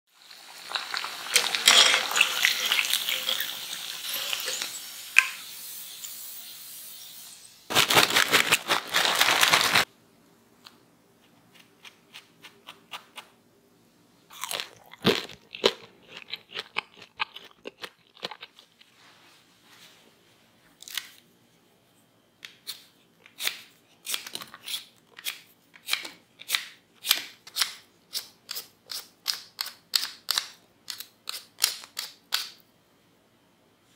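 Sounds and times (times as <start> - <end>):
hot oil sizzling and crackling: 0.1 - 7.7
crisp crunches and clicks: 7.7 - 9.9
peeler scraping potato skin: 22.6 - 32.6.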